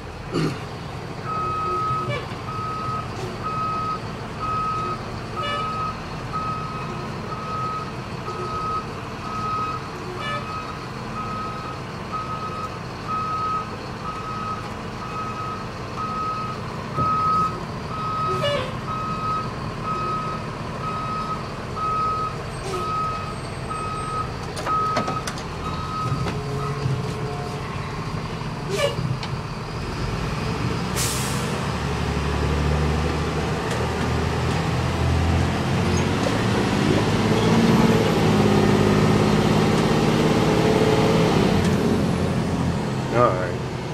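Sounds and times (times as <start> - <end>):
diesel engine running: 0.0 - 43.9
reverse alarm beeping: 1.3 - 27.6.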